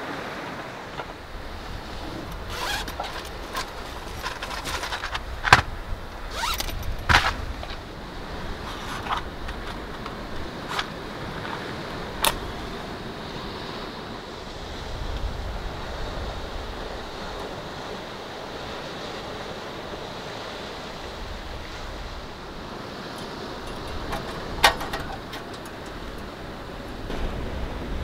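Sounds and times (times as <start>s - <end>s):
wind and water hiss: 0.0s - 28.0s
gear knocking and scraping: 2.3s - 5.7s, 23.2s - 26.3s.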